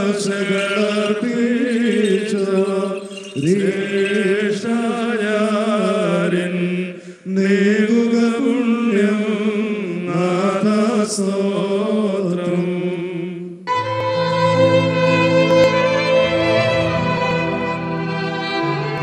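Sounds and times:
male voices chanting a hymn: 0.0 - 13.6
instrumental music with sustained notes: 13.7 - 19.0.

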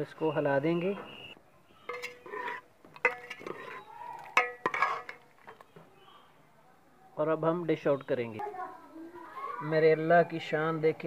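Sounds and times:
metal spoon scraping a pot: 1.9 - 5.6.

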